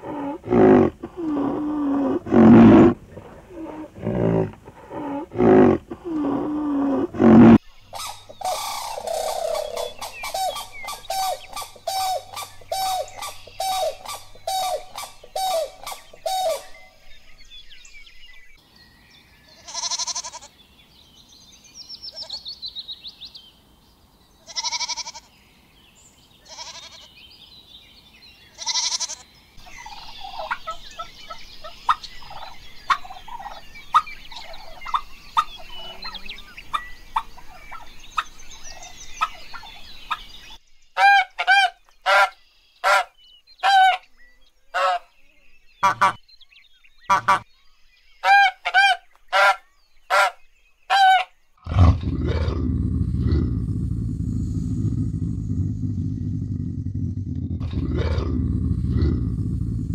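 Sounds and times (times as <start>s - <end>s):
turkeys gobbling: 8.0s - 16.6s.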